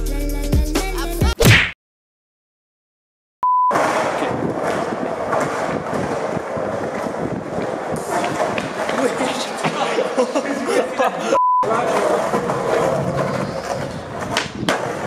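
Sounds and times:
short steady beep: 3.4s - 3.8s, 11.4s - 11.7s
skateboard wheels rolling on concrete: 3.7s - 15.0s.

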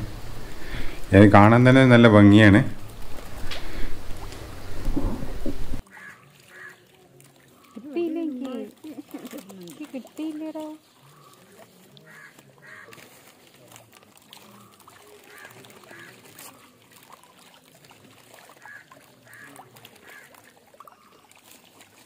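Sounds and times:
fish splashing at water surface: 2.6s - 22.0s.

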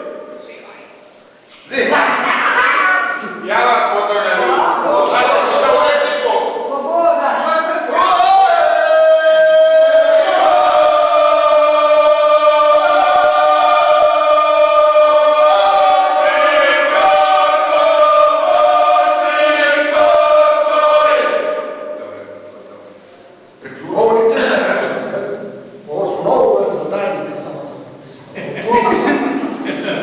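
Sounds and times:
group singing unaccompanied: 7.8s - 22.6s.

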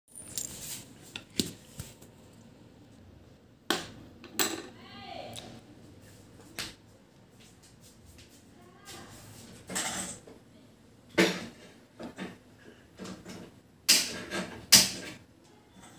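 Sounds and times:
objects clicking and knocking: 0.1s - 2.1s.

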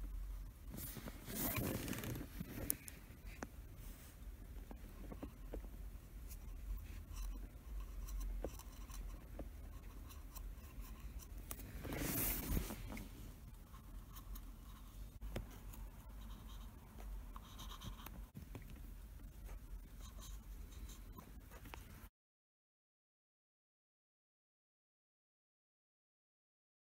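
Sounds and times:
cotton swab scratching and rubbing: 0.6s - 18.6s.

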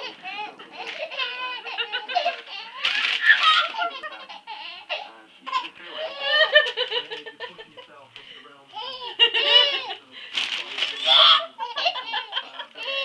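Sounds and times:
baby laughing: 0.0s - 7.7s, 8.7s - 10.0s, 10.8s - 13.0s.

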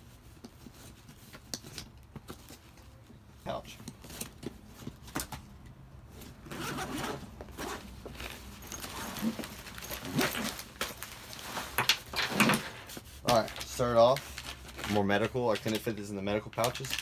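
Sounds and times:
canvas flap rustling: 6.1s - 15.3s
gear shifting inside bag: 6.2s - 12.6s
backpack zipper pulled: 6.4s - 7.9s, 8.6s - 10.6s.

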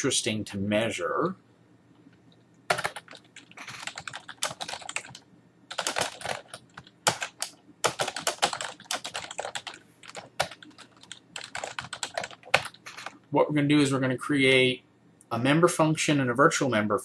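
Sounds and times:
typing on computer keyboard: 2.7s - 13.2s.

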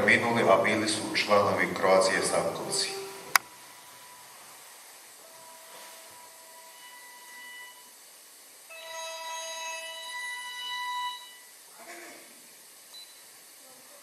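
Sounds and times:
held electronic tones: 2.6s - 4.2s.

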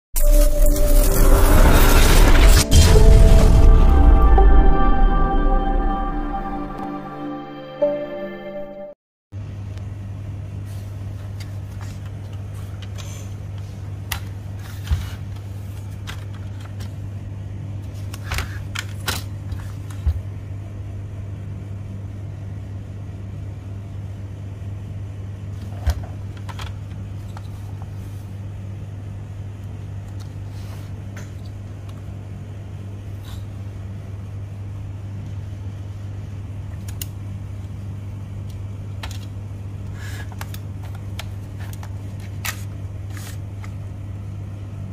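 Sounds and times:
low hum: 0.2s - 9.0s.

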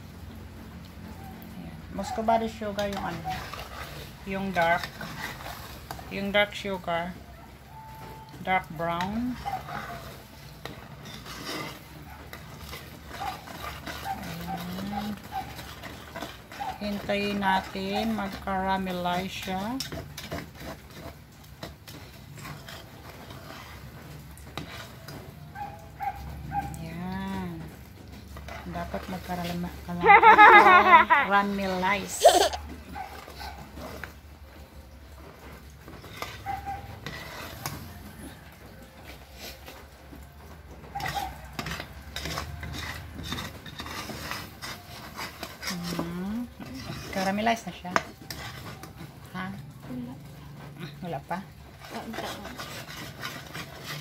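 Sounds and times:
syrup boiling: 0.0s - 54.0s
metal spatula scraping pan: 1.8s - 54.0s.

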